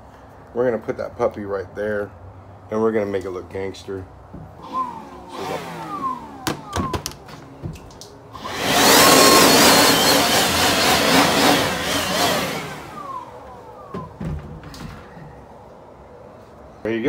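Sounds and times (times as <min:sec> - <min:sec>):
power drill drilling metal: 0:04.6 - 0:07.0, 0:08.4 - 0:13.5.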